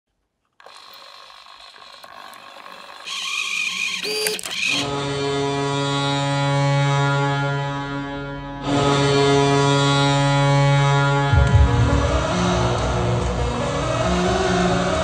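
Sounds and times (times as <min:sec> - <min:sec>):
motorized mechanism clattering: 0:00.5 - 0:05.0.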